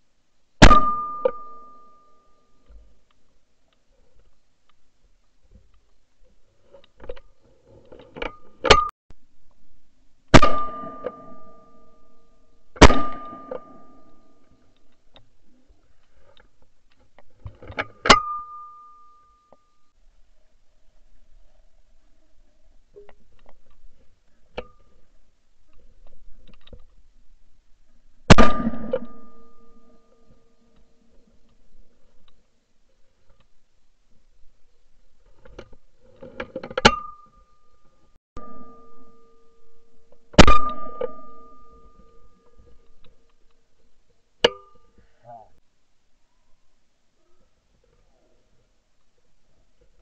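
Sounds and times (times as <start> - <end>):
shotgun shot with metallic ring: 0.6 - 2.0, 10.4 - 12.0, 12.8 - 14.1, 28.3 - 29.8
shotgun shots: 12.8 - 13.4.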